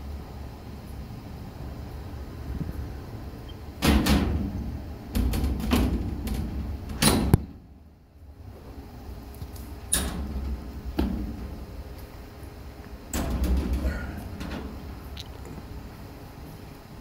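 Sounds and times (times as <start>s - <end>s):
steady low rumble: 0.0s - 17.0s
metal doors and latches banging: 3.8s - 7.6s, 9.8s - 11.8s, 13.0s - 15.6s.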